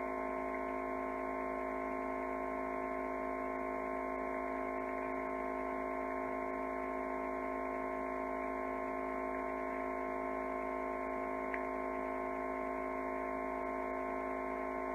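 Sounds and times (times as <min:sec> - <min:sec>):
electrical hum: 0:00.0 - 0:14.9
faint click: 0:11.5 - 0:11.7.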